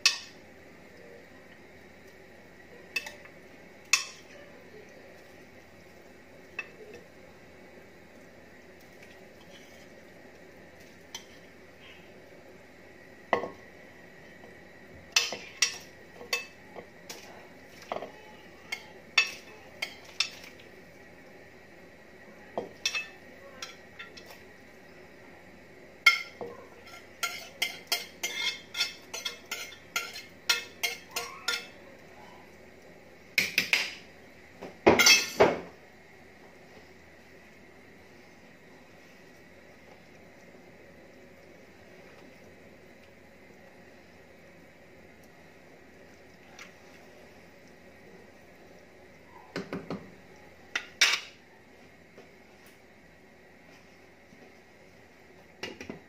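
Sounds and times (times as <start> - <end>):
spoon scraping ceramic plate: 26.9 - 31.7.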